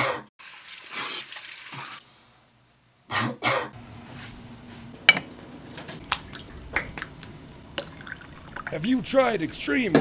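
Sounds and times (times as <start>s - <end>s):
man coughing: 3.1s - 3.8s.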